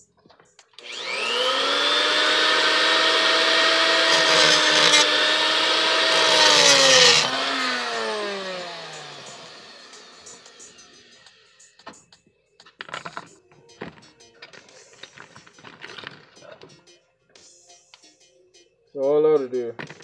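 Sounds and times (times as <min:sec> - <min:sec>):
angle grinder cutting metal: 0:00.8 - 0:11.6.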